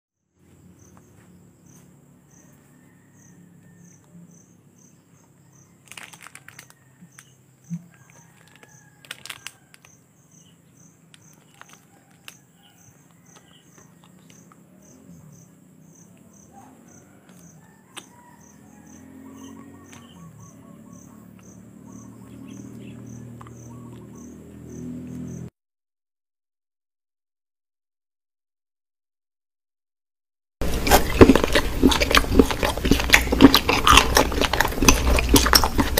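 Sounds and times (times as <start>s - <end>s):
insect chirping: 0.4s - 9.0s, 9.6s - 25.5s
faint background hum: 30.6s - 35.9s.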